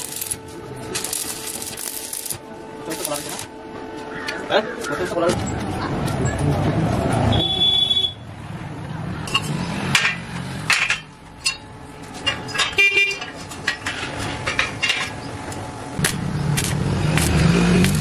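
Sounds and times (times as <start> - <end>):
welding arc: 0.0 - 3.5, 16.0 - 18.0
vehicle horn toot: 7.3 - 8.3, 12.7 - 13.3
steel tubes knocking and clinking: 9.3 - 15.3.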